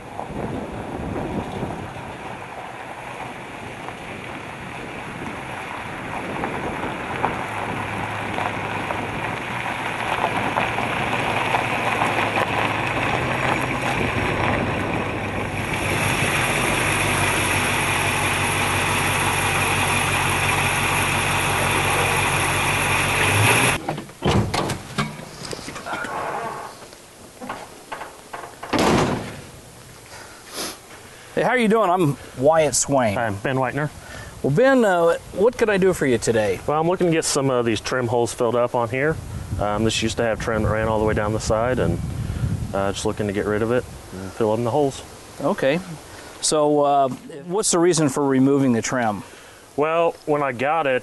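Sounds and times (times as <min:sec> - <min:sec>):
tyres rolling over gravel: 0:00.0 - 0:24.2
car engine running: 0:01.8 - 0:23.8.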